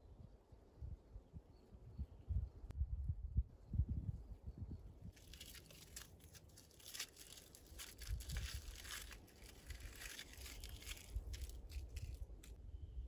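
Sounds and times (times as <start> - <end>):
wrapper crinkling and tearing: 5.2 - 12.6.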